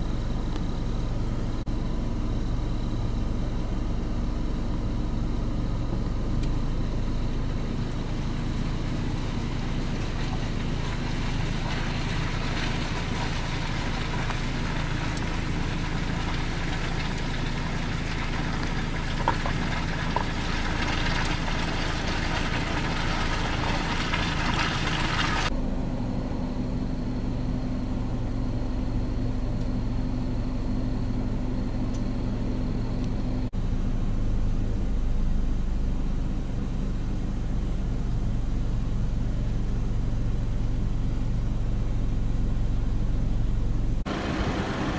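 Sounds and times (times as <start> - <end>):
engine idling hum: 0.0 - 44.9.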